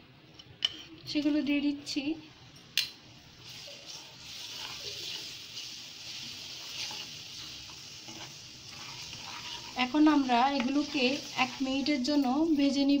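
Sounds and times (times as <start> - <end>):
paste sizzling in hot oil: 3.3 - 12.8.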